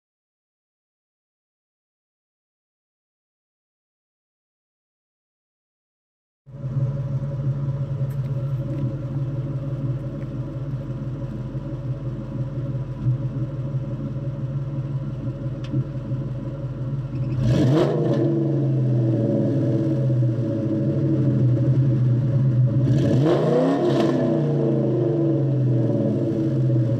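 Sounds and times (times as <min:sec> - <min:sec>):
car engine idling and revving: 0:06.5 - 0:26.9.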